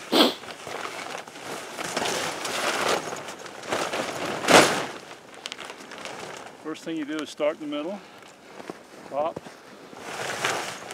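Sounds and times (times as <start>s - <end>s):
sharp fabric swishes: 0.0s - 0.5s
nylon tent fabric rustling: 0.0s - 10.9s.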